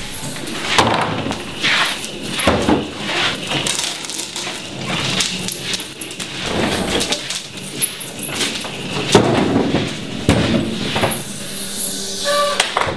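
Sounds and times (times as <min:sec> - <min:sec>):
metal trolley rattling: 0:00.2 - 0:11.6.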